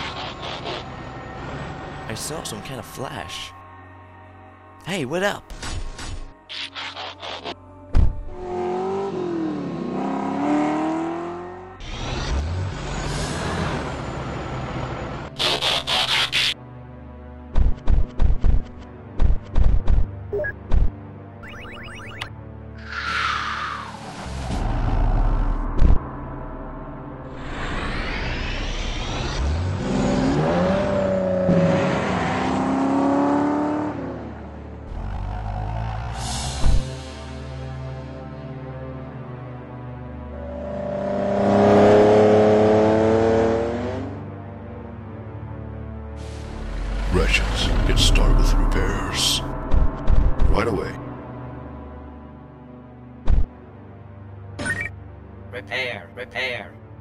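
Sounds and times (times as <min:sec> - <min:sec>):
car engine revving: 0:08.3 - 0:16.2, 0:27.4 - 0:37.1, 0:40.3 - 0:44.2, 0:46.3 - 0:49.8
truck engine rumble: 0:46.2 - 0:50.0.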